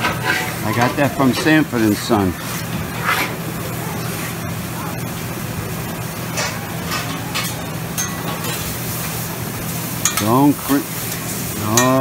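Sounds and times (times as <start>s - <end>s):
metal spatulas scraping steel: 0.0s - 1.6s
food sizzling on a griddle: 0.0s - 12.0s.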